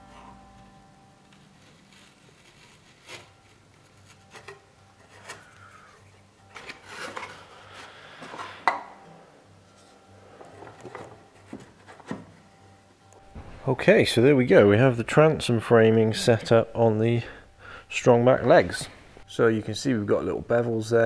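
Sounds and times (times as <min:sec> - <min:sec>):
wood rubbing and scraping: 0:13.2 - 0:17.4.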